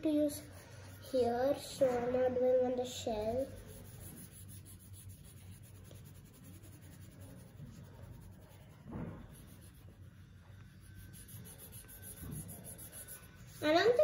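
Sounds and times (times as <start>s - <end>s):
crayon scratching on paper: 3.4s - 10.2s, 10.8s - 14.0s.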